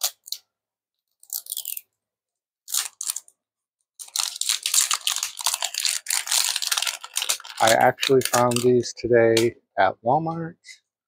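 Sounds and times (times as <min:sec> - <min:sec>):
plastic wrapping crinkling: 0:02.7 - 0:03.4, 0:04.0 - 0:08.8.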